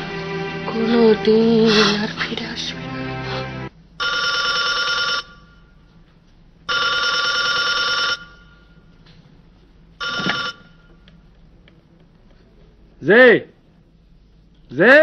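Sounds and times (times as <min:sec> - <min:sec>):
telephone ringing: 0:04.0 - 0:05.6, 0:06.7 - 0:08.6, 0:10.0 - 0:10.9.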